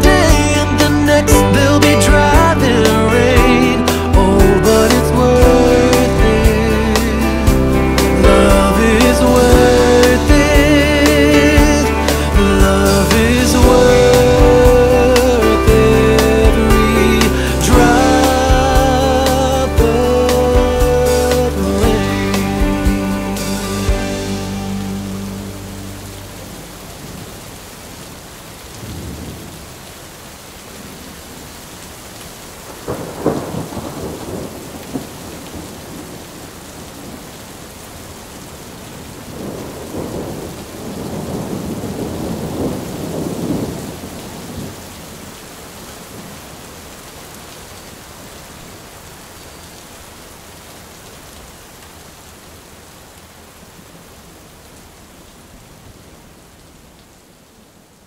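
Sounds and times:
steady rain: 0.0s - 58.0s
thunder rumble: 3.5s - 19.1s, 28.8s - 29.8s, 32.7s - 37.2s, 39.2s - 45.0s
thunder clap: 32.8s - 36.2s, 39.3s - 44.8s.

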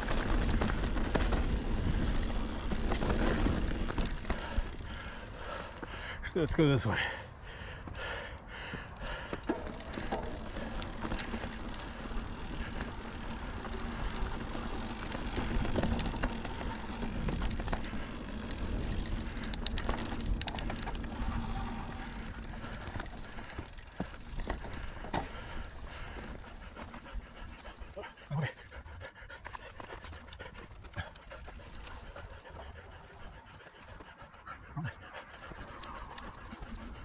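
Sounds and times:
bike rattling over bumps: 0.0s - 6.2s, 8.1s - 34.2s, 35.3s - 37.0s
bike tyre and wind rumble: 0.0s - 6.2s, 7.5s - 37.0s.

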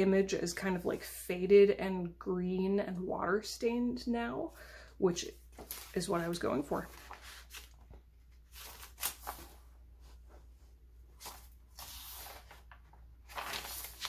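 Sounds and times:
paper pages rustling: 5.5s - 14.0s.

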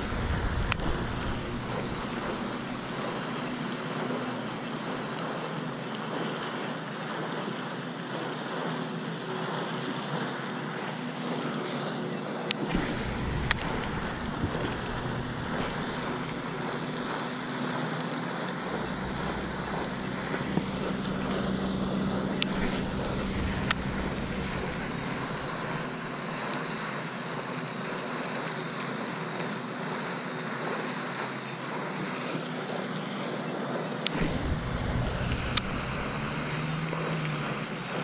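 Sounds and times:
wind on microphone: 0.0s - 3.5s, 12.7s - 17.2s, 34.1s - 38.0s.

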